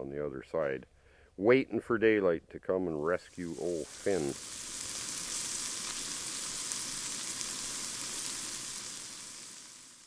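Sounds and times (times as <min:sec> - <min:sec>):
prawns sizzling in a pan: 0:03.0 - 0:10.0.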